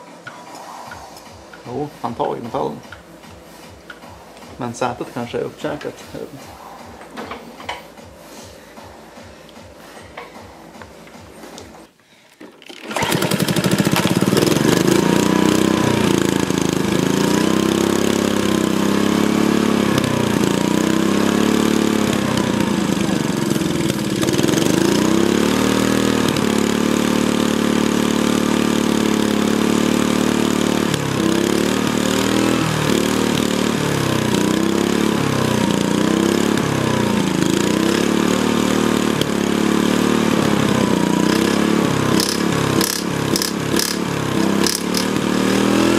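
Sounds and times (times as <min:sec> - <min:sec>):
lawn mower engine running: 0:12.5 - 0:45.9.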